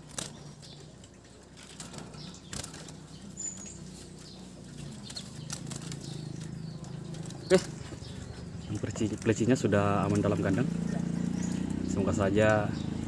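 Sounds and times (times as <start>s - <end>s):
bird fluttering wings: 0.0s - 0.4s, 1.6s - 3.2s, 4.0s - 7.8s.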